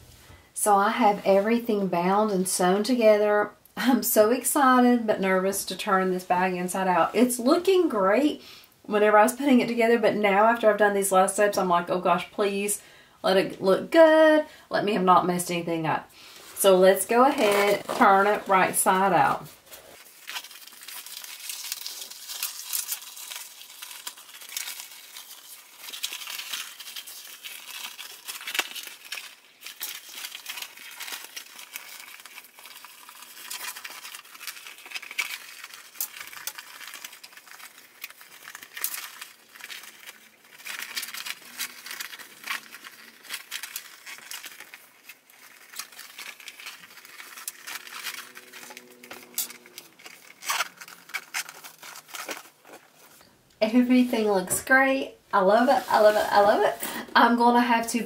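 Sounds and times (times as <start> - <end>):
vinyl pouch crinkling and rustling: 16.5 - 53.4.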